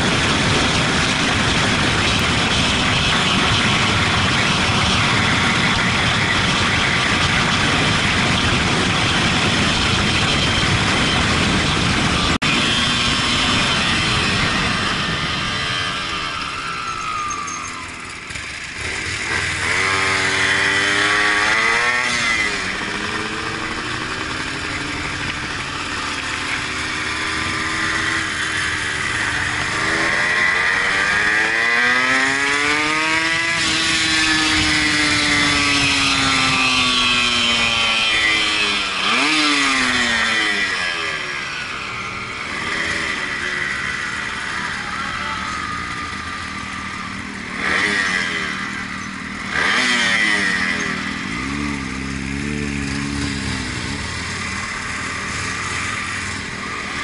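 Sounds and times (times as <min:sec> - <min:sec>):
wind rushing over microphone: 0:00.0 - 0:17.2
motorcycle engine accelerating: 0:00.0 - 0:57.0.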